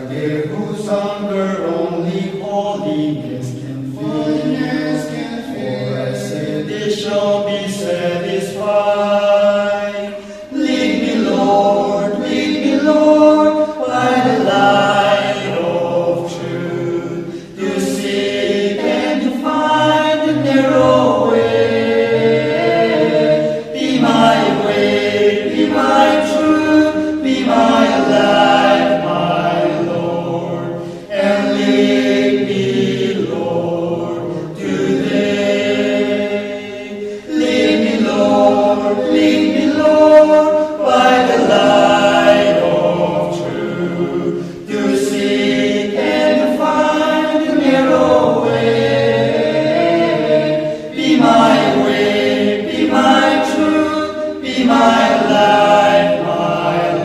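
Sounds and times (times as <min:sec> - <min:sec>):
men singing a hymn a cappella: 0:00.0 - 0:57.0.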